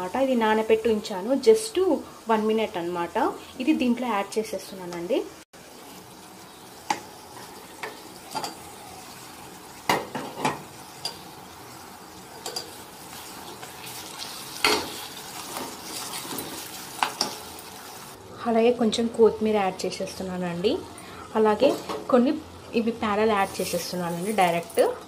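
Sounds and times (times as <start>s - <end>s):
food sizzling: 0.0s - 18.2s, 19.4s - 25.0s
spoon clinking against pot: 12.4s - 12.8s.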